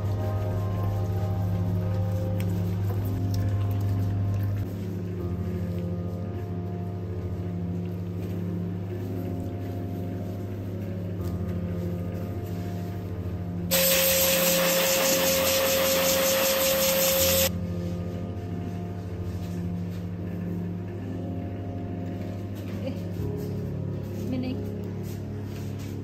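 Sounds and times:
blow dryer whining: 0:13.7 - 0:17.5.

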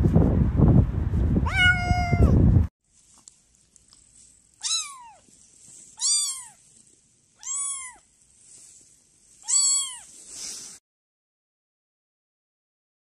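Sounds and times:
kitten mewing: 0:01.4 - 0:02.4, 0:04.6 - 0:05.3, 0:06.0 - 0:06.6, 0:07.4 - 0:08.1, 0:09.4 - 0:10.1.

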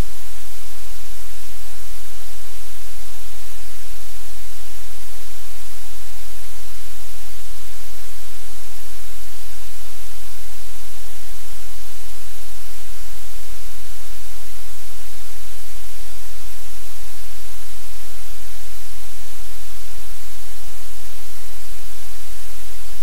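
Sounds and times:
static hiss: 0:00.0 - 0:23.0.

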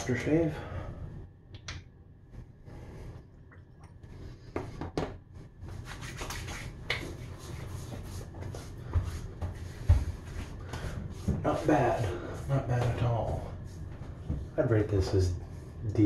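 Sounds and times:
hands rubbing skin: 0:05.6 - 0:10.6.

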